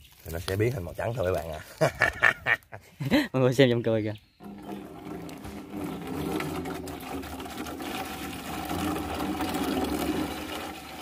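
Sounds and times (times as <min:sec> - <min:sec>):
liquid pouring into glass jar: 0:04.4 - 0:11.0.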